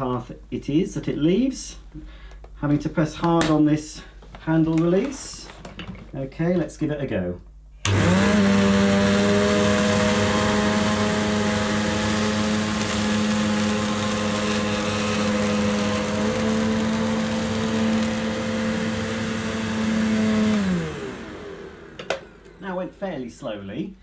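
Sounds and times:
vacuum motor winding down: 7.8s - 22.7s
vacuum cleaner running: 7.8s - 22.9s.

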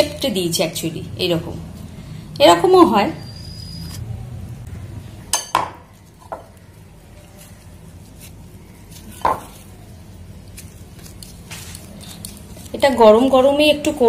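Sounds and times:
kitchenware clinking: 5.3s - 6.5s.

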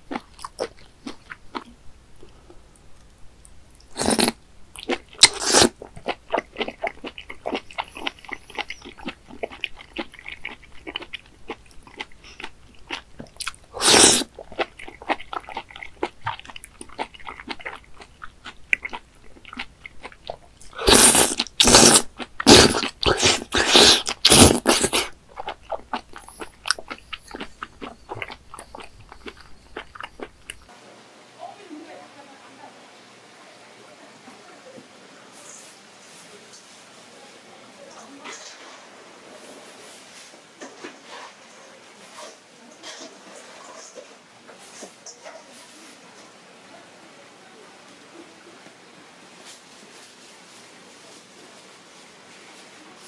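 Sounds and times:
wet chewing: 0.0s - 30.7s
slurping: 3.8s - 30.7s.

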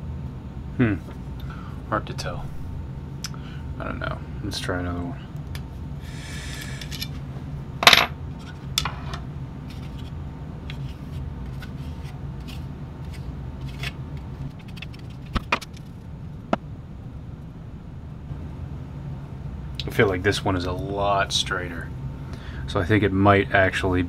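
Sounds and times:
low hum: 0.0s - 24.0s
arrow parts clicking and scraping: 6.5s - 7.2s, 10.7s - 16.0s.

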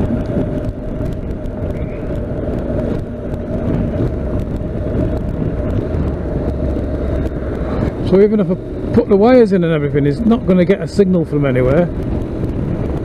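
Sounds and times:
motorcycle engine running: 0.0s - 13.0s
wind and road noise: 0.0s - 13.0s.

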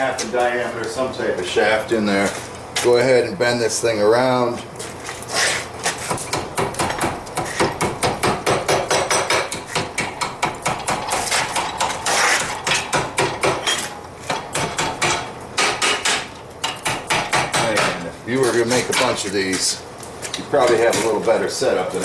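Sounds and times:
hammer striking hot steel: 6.1s - 18.0s.

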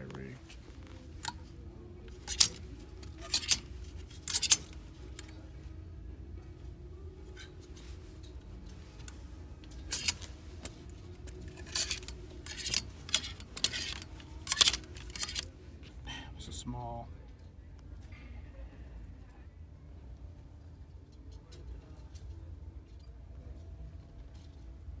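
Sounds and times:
plastic hangers clicking on metal rail: 2.1s - 5.3s, 7.3s - 15.5s.

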